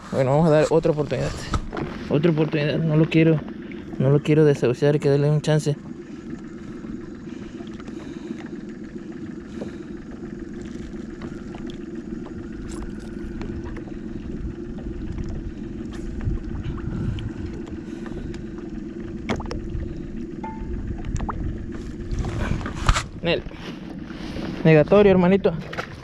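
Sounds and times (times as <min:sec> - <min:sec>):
wind rumble on microphone: 0:10.6 - 0:26.0.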